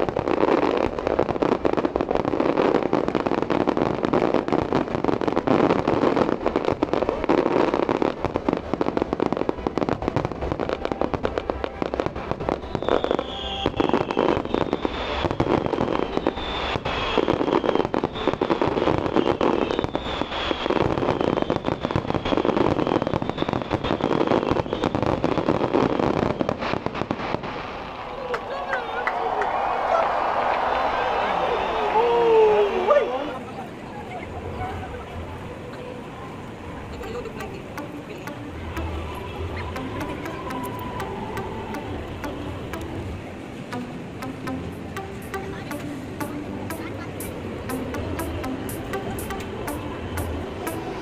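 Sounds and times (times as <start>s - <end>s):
fireworks bangs and crackling: 0.0s - 28.5s
short falling whistles: 12.6s - 15.4s.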